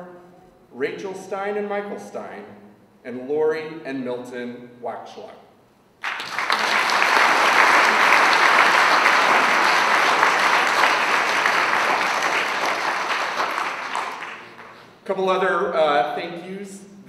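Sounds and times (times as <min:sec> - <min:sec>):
audience clapping: 0:06.0 - 0:15.0.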